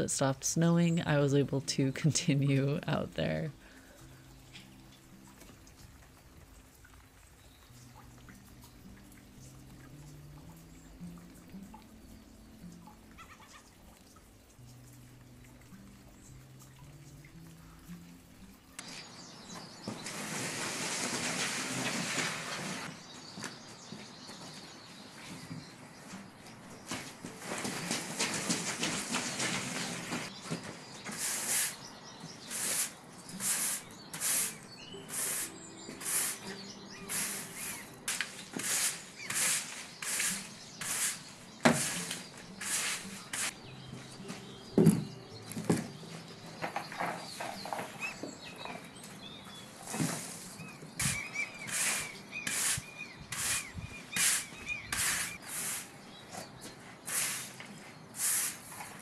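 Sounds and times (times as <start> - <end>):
planter pot scraping and knocking: 18.8 - 58.0
broom sweeping wet stone: 19.8 - 22.9, 30.9 - 43.6, 49.5 - 56.2, 57.0 - 59.0
bird chirping: 30.3 - 58.2.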